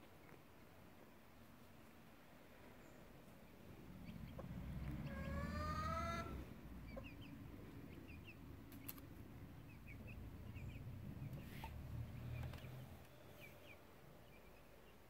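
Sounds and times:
chicks peeping: 3.3 - 15.0
chicken calling: 4.0 - 7.3.

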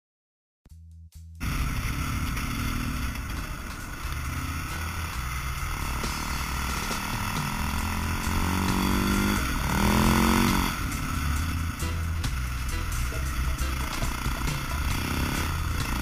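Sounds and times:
dirt bike engine revving: 1.4 - 16.0
background music: 3.3 - 16.0.

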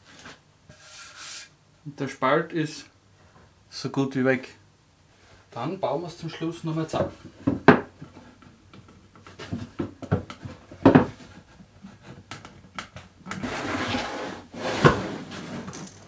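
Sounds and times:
wood sliding against wood: 13.3 - 15.8.

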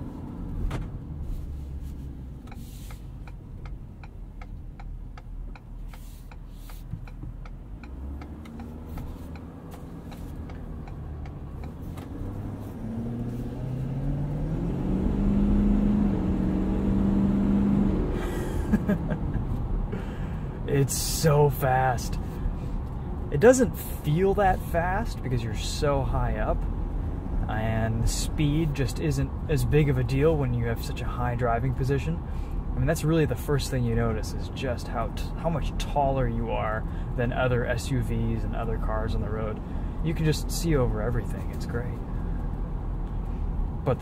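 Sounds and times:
diesel truck engine accelerating: 0.0 - 44.0
regular ticking: 2.4 - 13.1.

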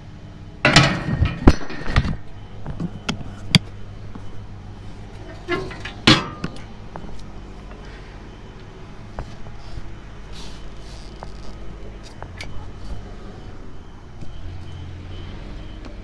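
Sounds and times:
low hum: 0.0 - 16.0
metal cover clattering: 0.6 - 2.0, 5.2 - 6.7.

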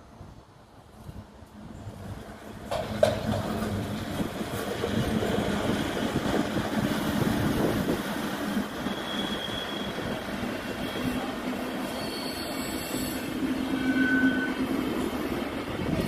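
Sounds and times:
train wheels rumbling and rattling: 0.9 - 16.0
wheels clicking over rail joints: 2.5 - 6.9
high wheel squeal: 8.8 - 10.2, 10.8 - 14.8.

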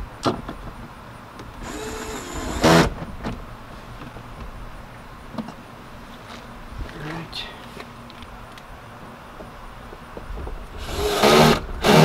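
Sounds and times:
electric screwdriver whirring: 10.8 - 12.0.

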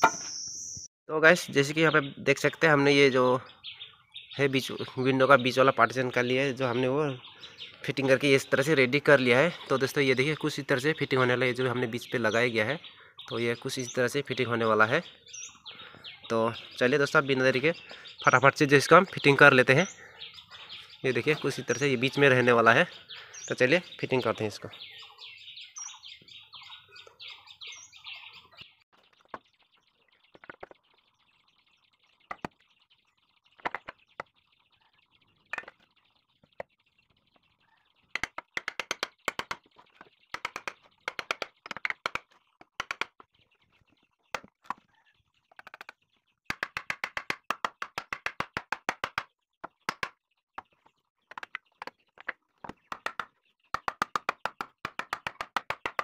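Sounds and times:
birds chirping: 0.0 - 56.0
hammer knocking wood: 38.2 - 39.7, 40.4 - 43.3, 46.5 - 50.2, 51.3 - 56.0.

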